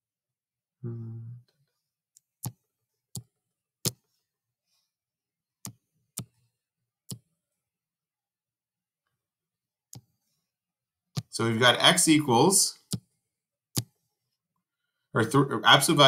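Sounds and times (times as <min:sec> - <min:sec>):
computer mouse clicking: 0:02.2 - 0:04.1, 0:09.9 - 0:10.2, 0:12.8 - 0:13.1, 0:13.7 - 0:14.0.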